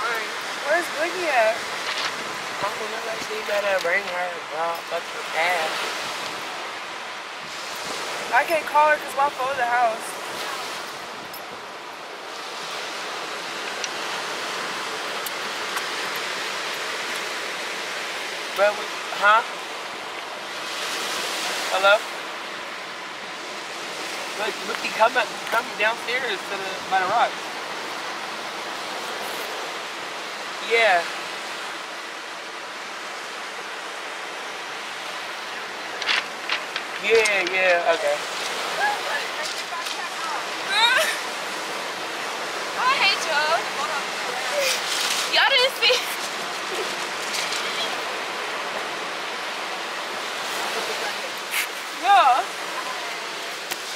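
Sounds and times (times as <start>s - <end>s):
ocean surf rushing: 0.0s - 53.9s.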